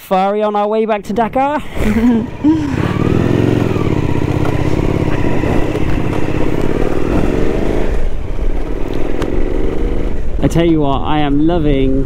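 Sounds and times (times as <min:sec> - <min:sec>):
road and wind noise: 0:00.0 - 0:12.0
motorcycle engine running: 0:01.8 - 0:12.0.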